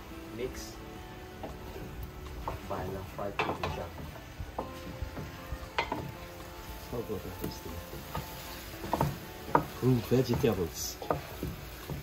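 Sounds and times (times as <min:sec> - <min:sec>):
vegetables frying in a pot: 0:00.0 - 0:12.0
spoon knocking and scraping pot: 0:03.4 - 0:06.2, 0:07.9 - 0:12.0.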